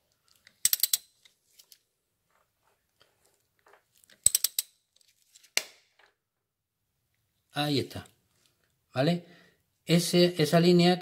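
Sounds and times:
ratchet wrench clicking: 0.6 - 1.2, 4.2 - 4.8.

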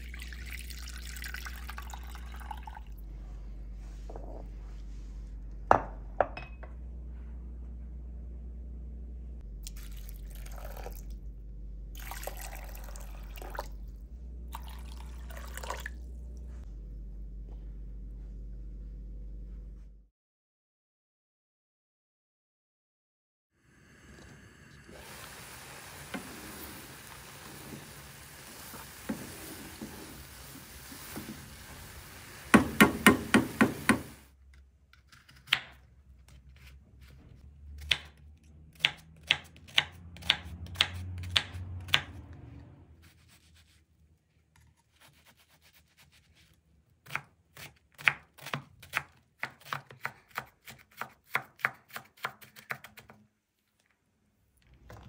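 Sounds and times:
knife chopping on cutting board: 32.5 - 34.1, 47.0 - 53.2.

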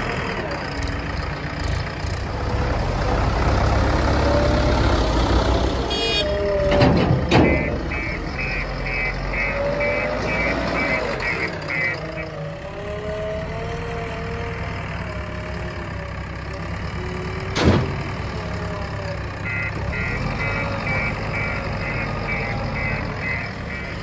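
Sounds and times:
diesel engine running: 0.0 - 24.0
reversing alarm beeping: 7.3 - 12.4, 19.4 - 24.0.

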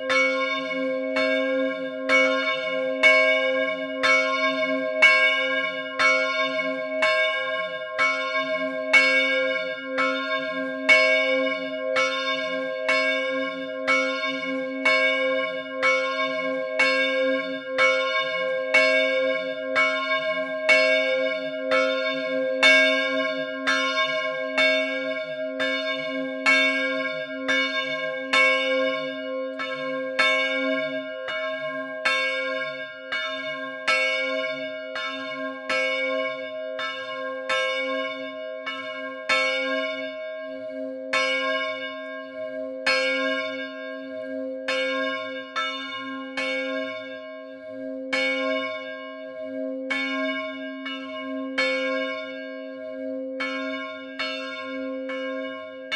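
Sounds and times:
large church bell ringing: 0.0 - 55.9.

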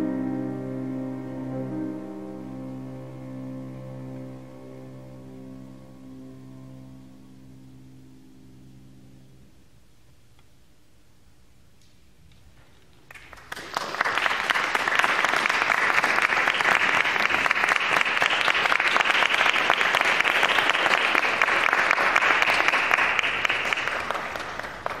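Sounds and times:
audience applauding: 13.1 - 25.0.

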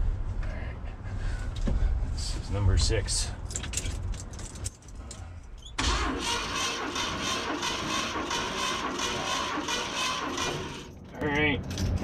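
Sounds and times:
engine cranking on starter motor: 5.8 - 10.9.

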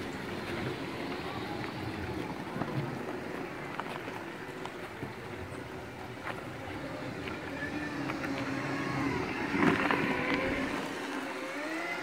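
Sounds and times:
electric drive whining: 6.8 - 12.0.

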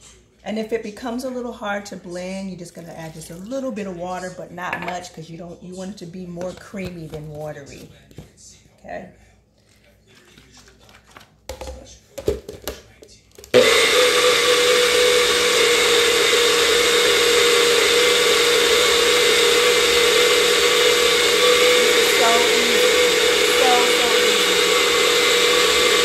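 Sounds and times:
blender motor whirring: 13.5 - 26.0.

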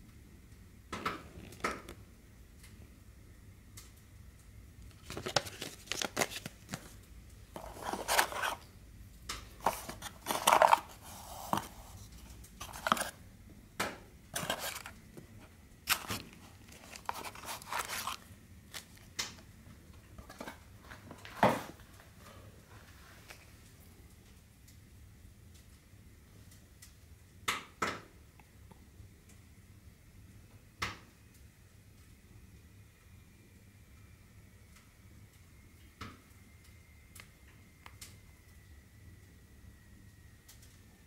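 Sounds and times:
packaging rustling and crinkling: 4.9 - 8.7, 9.5 - 13.2, 14.3 - 19.4.

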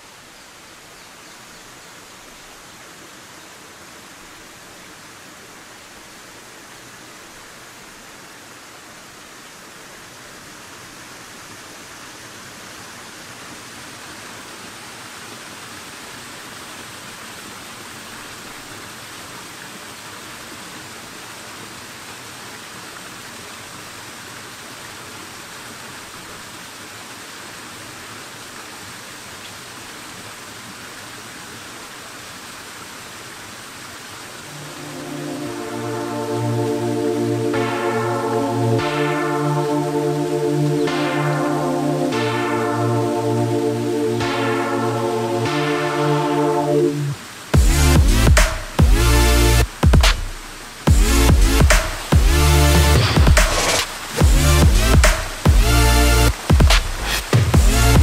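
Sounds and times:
stream splashing over rocks: 1.6 - 35.4.

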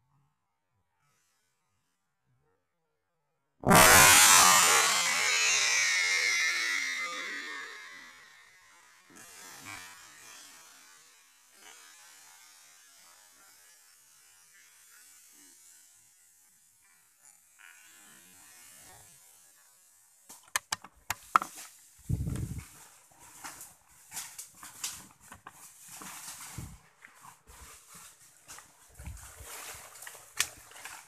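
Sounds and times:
sharp clicks and knocks: 20.3 - 21.7.

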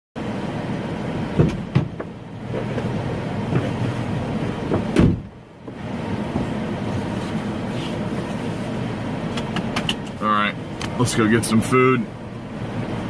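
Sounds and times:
outside noise: 0.2 - 13.0
car door shutting: 1.3 - 2.9, 3.5 - 6.6
knocks and rustles: 1.4 - 6.6.

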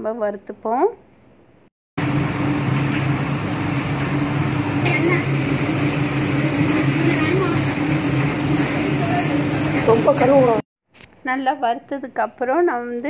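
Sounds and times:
seeds sizzling in hot oil: 2.0 - 10.6
gas burner roaring: 2.0 - 10.7.

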